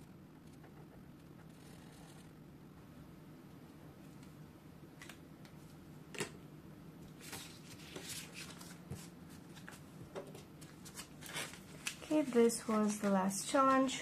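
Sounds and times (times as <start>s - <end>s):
plastic and paper rustling: 7.2s - 14.0s.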